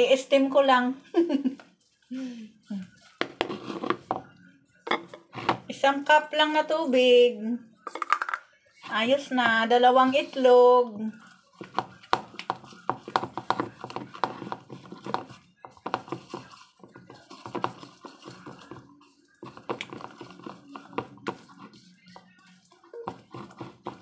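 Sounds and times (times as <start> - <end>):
spatula beating batter in bowl: 8.8 - 24.0.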